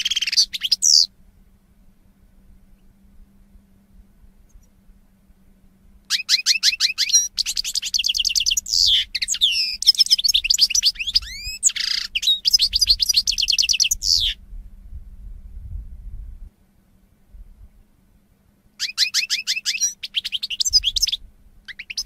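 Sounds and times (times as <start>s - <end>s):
goldfinch singing: 0.0s - 1.1s, 6.1s - 14.4s, 18.8s - 22.0s.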